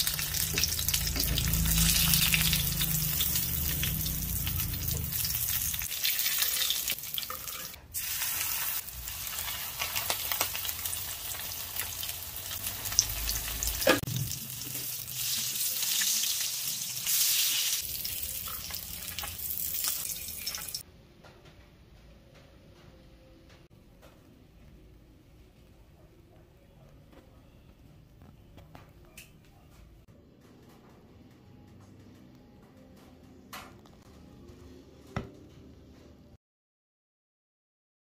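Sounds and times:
fish frying in hot oil: 0.0 - 20.8.

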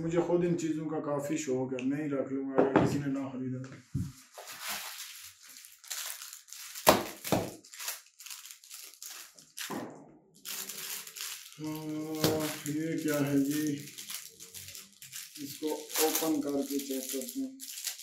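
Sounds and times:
plastic packet crinkling: 4.2 - 9.8, 10.4 - 18.0
rummaging in a carton: 4.3 - 5.3.

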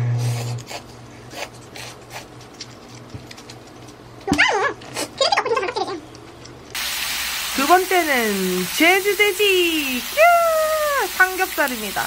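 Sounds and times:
dog whining yelps: 4.3 - 4.8.

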